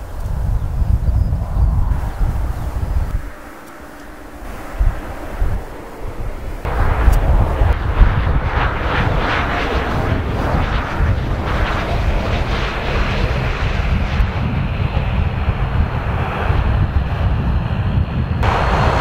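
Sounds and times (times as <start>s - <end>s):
steady high whine: 0.0s - 19.0s
turboprop airliner landing: 0.0s - 19.0s.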